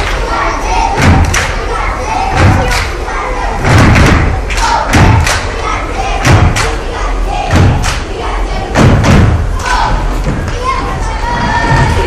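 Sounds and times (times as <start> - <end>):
crowd of voices: 0.0 - 12.0
stomping on wooden stage: 3.6 - 5.3, 7.5 - 7.9, 8.7 - 10.5.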